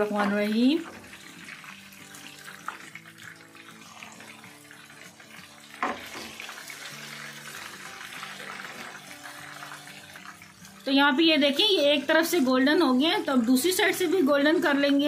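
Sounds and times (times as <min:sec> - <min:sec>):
fish sizzling in hot oil: 0:00.0 - 0:15.0
soft background music: 0:00.0 - 0:15.0.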